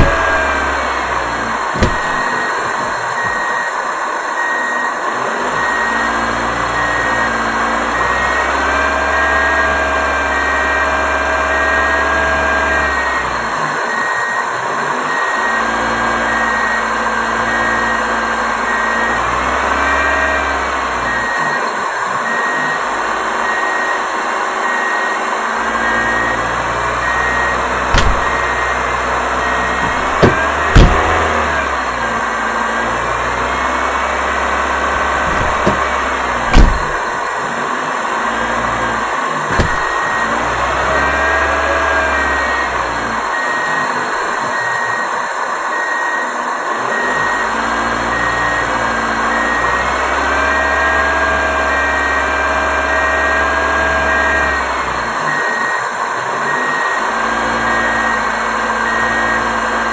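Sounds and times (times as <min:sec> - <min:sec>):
sharp knocks: 0:00.0 - 0:00.6, 0:01.8 - 0:02.3, 0:27.9 - 0:28.4, 0:29.8 - 0:31.4, 0:35.2 - 0:37.1, 0:39.5 - 0:40.0.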